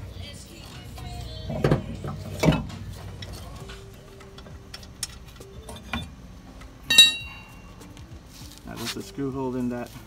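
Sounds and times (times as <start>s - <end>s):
ringing metal clink: 6.9s - 7.7s.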